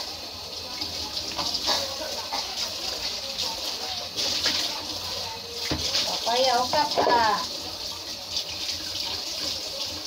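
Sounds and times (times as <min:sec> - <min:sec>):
tap water splashing: 0:00.7 - 0:04.9, 0:05.6 - 0:07.6.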